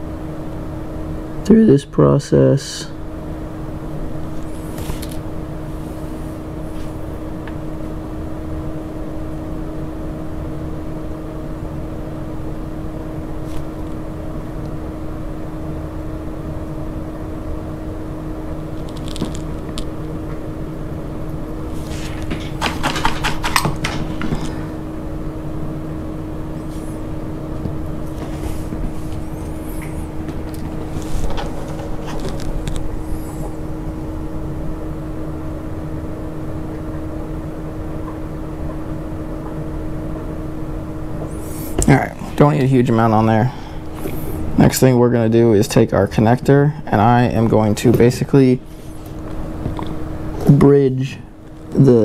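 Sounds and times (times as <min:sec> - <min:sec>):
steady mechanical hum: 0:00.0 - 0:52.0
handling noises: 0:21.7 - 0:24.7, 0:26.6 - 0:33.8.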